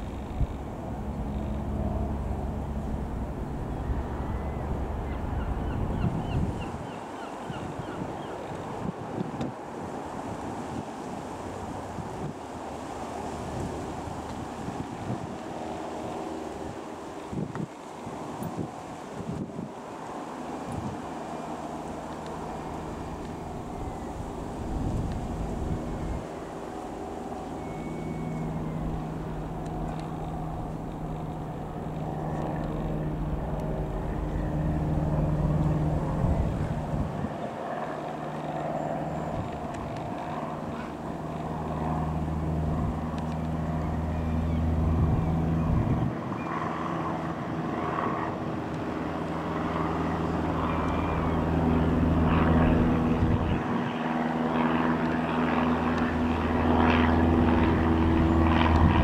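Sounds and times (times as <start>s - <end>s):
propeller plane droning overhead: 0.0s - 59.0s.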